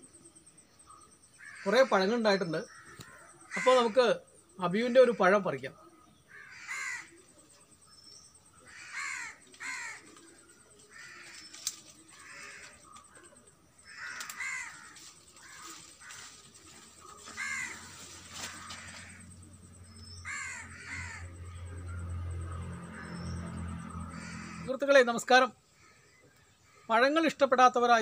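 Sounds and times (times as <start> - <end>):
crows cawing: 1.3 - 4.2, 6.2 - 7.4, 8.5 - 24.8, 25.6 - 27.0.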